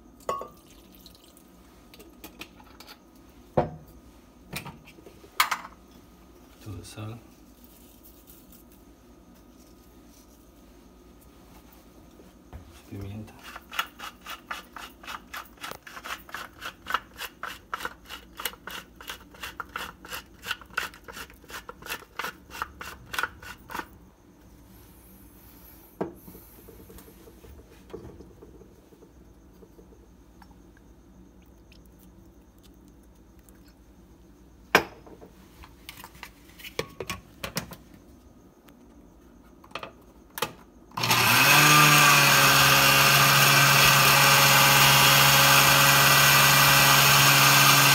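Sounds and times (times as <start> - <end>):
pepper mill grinding: 13.3 - 23.9
blender motor running: 41.0 - 47.9.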